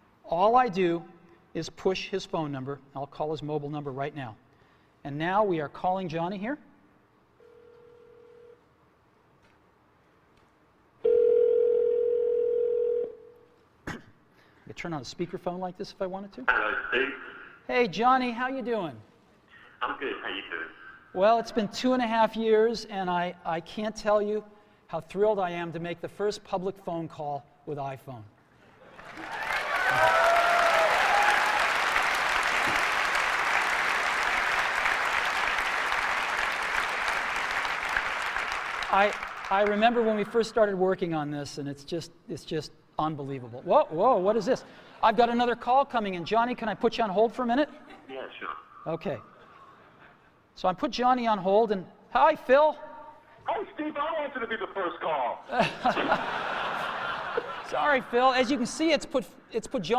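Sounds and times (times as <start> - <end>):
telephone ringback tone: 7.4 - 8.6, 11.0 - 13.4
large audience applauding: 29.0 - 40.2.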